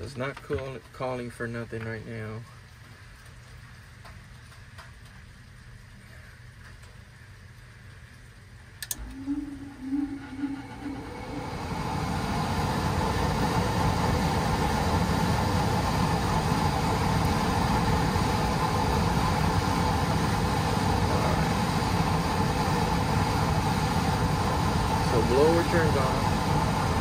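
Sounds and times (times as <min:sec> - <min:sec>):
furnace blower motor running: 0:08.8 - 0:27.0.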